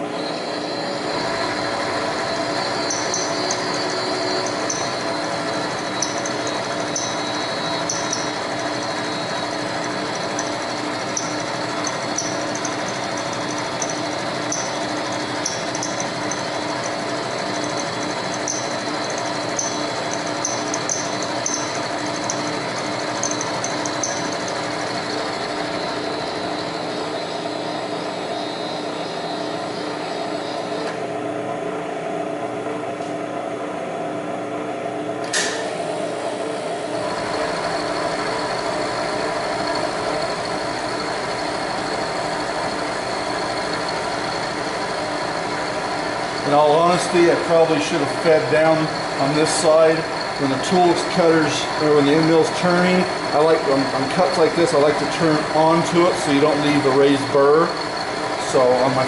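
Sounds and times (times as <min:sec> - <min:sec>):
high whine: 0:00.0 - 0:27.8
milling spindle hum: 0:00.0 - 0:30.8, 0:37.0 - 0:59.0.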